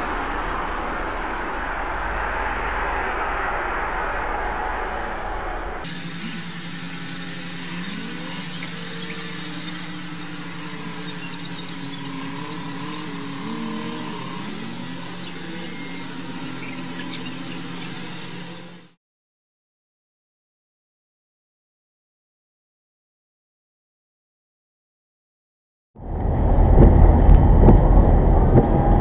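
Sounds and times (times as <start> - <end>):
low hum: 0.0 - 19.0, 26.0 - 29.0
faint wavering pitched sounds: 5.9 - 19.0.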